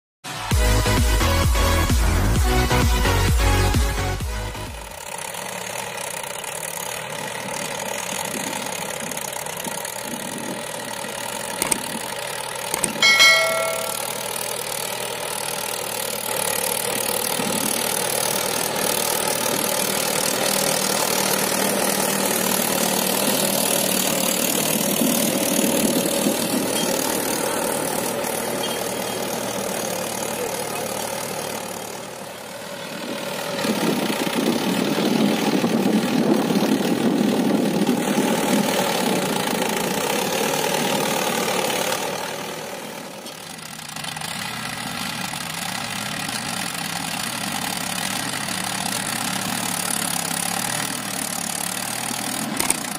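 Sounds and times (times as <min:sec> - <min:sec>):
tractor diesel engine running: 0:00.3 - 0:52.9
brief metallic ring: 0:12.8 - 0:14.3.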